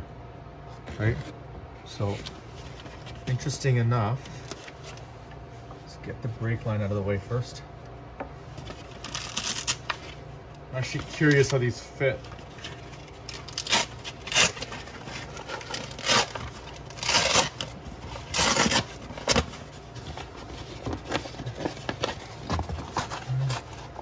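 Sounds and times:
cover rustling and crinkling: 8.4s - 24.0s.

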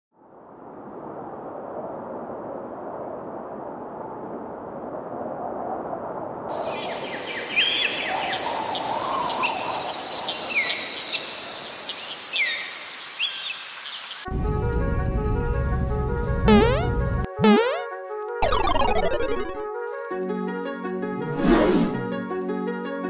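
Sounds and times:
high insect chorus: 6.5s - 14.3s
electronic music with a beat: 16.5s - 19.6s.

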